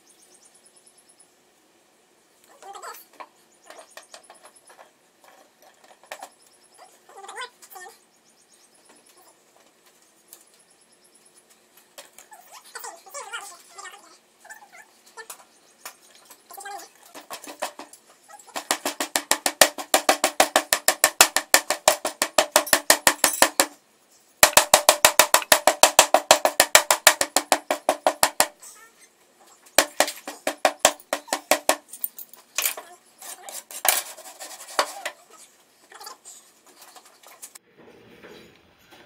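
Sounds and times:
hammer ramming sand in metal flask: 18.6s - 23.8s, 24.4s - 28.6s, 29.8s - 31.9s.

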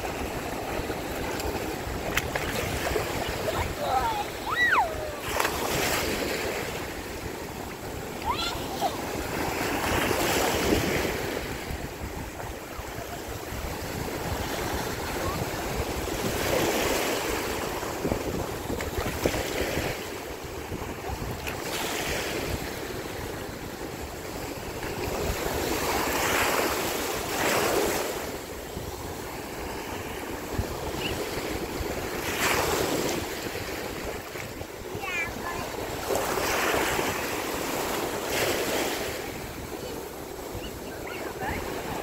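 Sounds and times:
wind buffeting microphone: 0.0s - 26.0s
small waves breaking: 0.0s - 42.0s.

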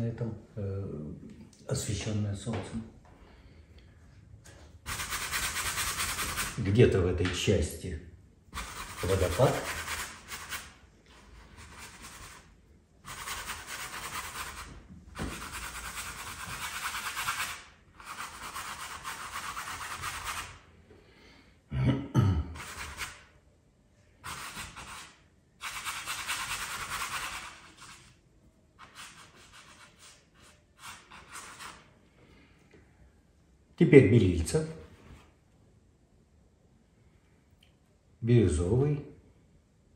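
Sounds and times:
paintbrush scrubbing on canvas: 4.9s - 6.6s, 8.6s - 20.6s, 22.6s - 23.2s, 24.2s - 28.2s, 28.8s - 31.9s.

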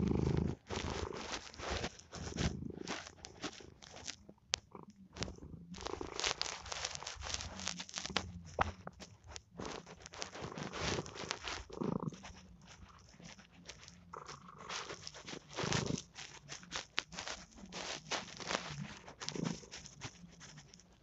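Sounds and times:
cat purring: 0.0s - 21.0s
crackling clicks: 0.0s - 21.0s.

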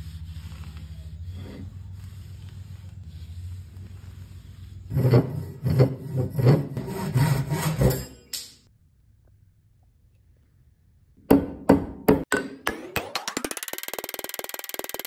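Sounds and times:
hand saw cutting wood: 4.9s - 8.1s.

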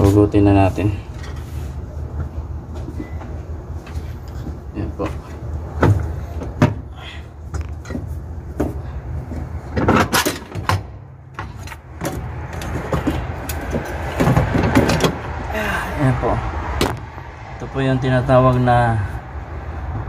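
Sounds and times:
metal knocks and clunks: 2.7s - 6.9s, 7.5s - 15.4s.

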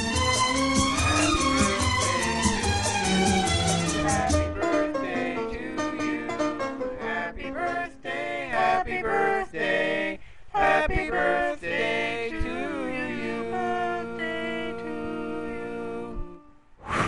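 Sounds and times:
music: 0.0s - 8.6s, 12.3s - 16.6s
person singing: 0.8s - 2.7s, 3.8s - 9.4s, 10.6s - 16.5s.

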